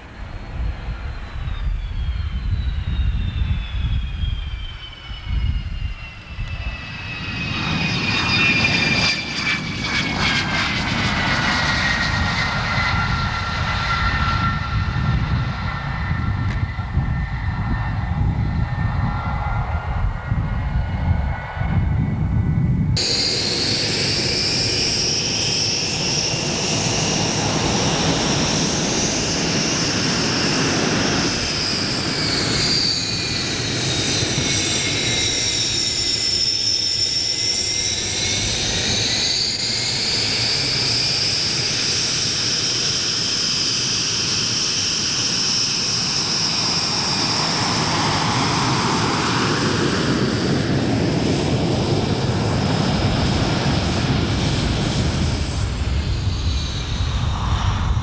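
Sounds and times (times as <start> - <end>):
high turbine whine: 0.0 - 58.0
jet engine rush: 0.0 - 58.0.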